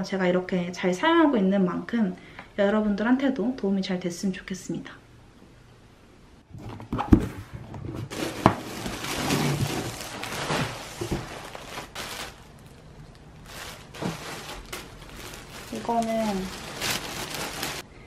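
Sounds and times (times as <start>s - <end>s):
packaging rustling: 8.1s - 17.8s
plastic bag crinkling: 8.1s - 17.9s.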